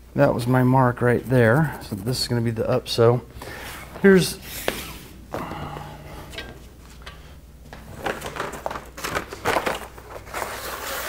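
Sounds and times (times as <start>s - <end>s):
fabric and tape rustling: 6.3s - 11.0s.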